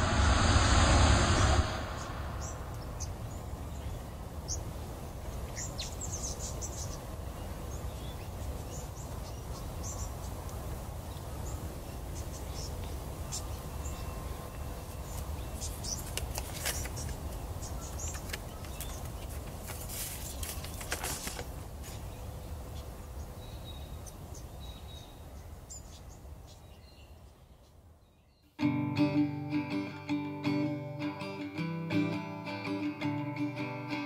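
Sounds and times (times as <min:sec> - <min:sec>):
brief rustles: 0:18.0 - 0:22.0.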